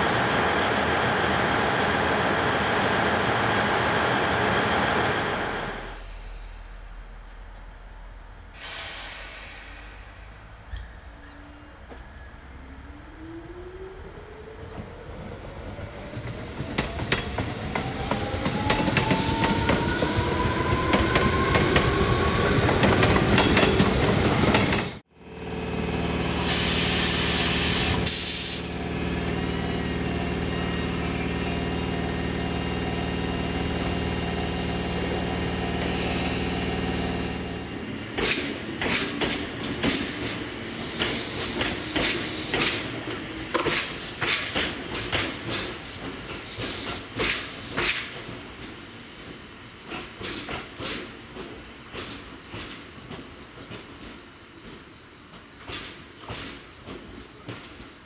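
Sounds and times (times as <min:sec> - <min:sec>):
air hiss: 0:05.9 - 0:07.1, 0:08.6 - 0:10.7, 0:26.4 - 0:28.7, 0:35.8 - 0:37.8
standing train humming: 0:12.9 - 0:55.6
train wheels clacking over joints: 0:37.6 - 0:48.8, 0:49.8 - 0:58.0.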